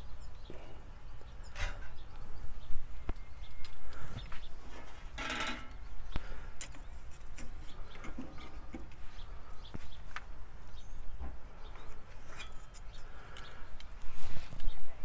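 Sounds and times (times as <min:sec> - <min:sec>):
metal spatula scraping cast-iron grate: 0:11.8 - 0:13.1.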